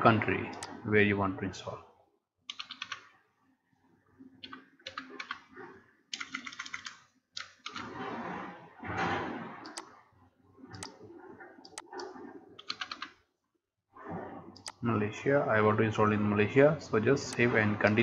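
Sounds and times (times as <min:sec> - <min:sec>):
keyboard typing: 0:02.5 - 0:03.1, 0:04.4 - 0:05.5, 0:06.1 - 0:07.9, 0:11.6 - 0:13.2.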